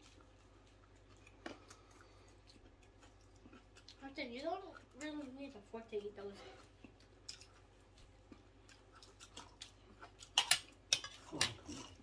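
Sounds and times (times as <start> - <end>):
crispy chicken crunching: 6.6 - 12.0.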